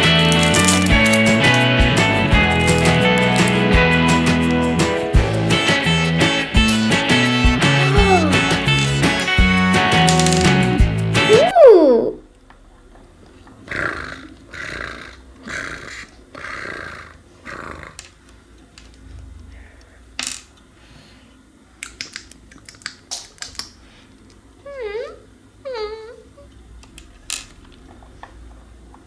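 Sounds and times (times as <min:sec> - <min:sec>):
plastic toy pieces clicking: 0:00.0 - 0:01.7, 0:02.5 - 0:03.6, 0:10.0 - 0:10.5, 0:21.8 - 0:23.8.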